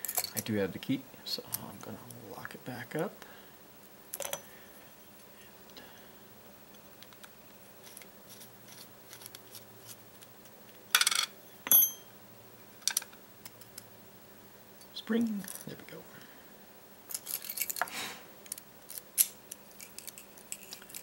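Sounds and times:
sharp metallic clink: 11.7s - 12.1s.

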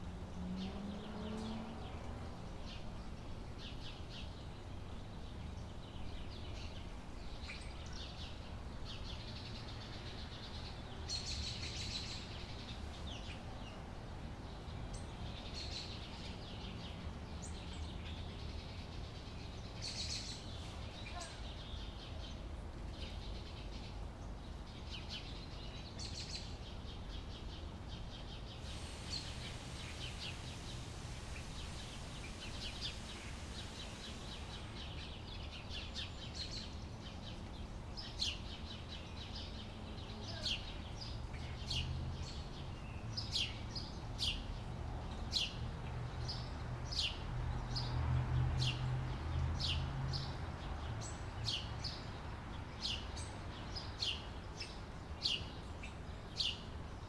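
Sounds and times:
small birds chirping: 0.3s - 57.0s
high hiss: 28.5s - 36.5s.

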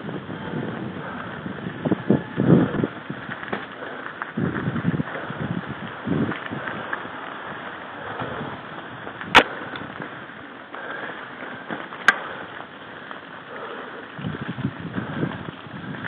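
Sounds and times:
bike tyres on gravel: 0.0s - 16.0s
wind noise: 0.0s - 16.0s.

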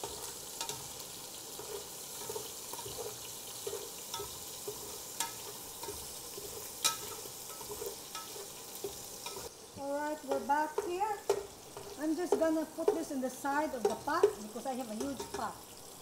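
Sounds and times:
spoon scraping against pot: 0.0s - 9.5s, 10.3s - 13.1s
pork sizzling in oil: 0.0s - 16.0s.

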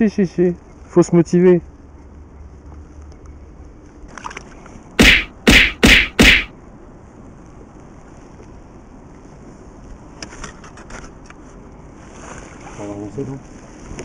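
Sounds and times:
loud whacks: 5.0s - 6.5s.

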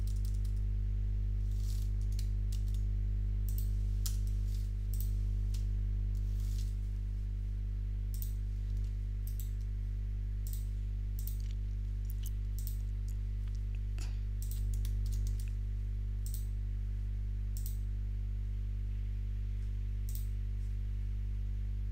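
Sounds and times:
low electrical hum: 0.0s - 21.9s.

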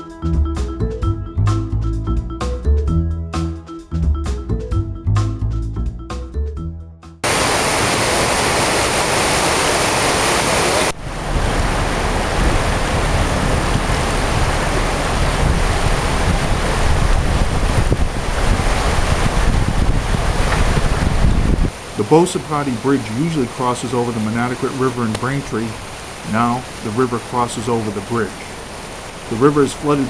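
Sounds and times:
floodwater rushing: 7.2s - 30.0s
low rumble: 11.0s - 21.6s
wind buffeting microphone: 11.0s - 23.4s.

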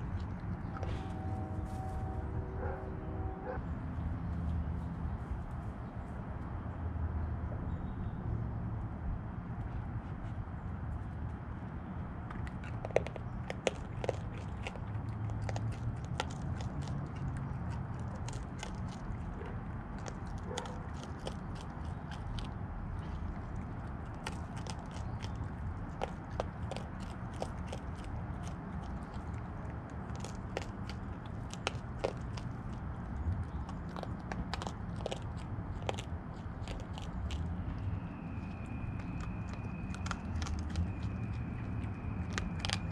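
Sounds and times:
raccoon crunching kibble: 0.0s - 1.9s, 9.6s - 42.9s
steady low hum: 0.0s - 7.6s.

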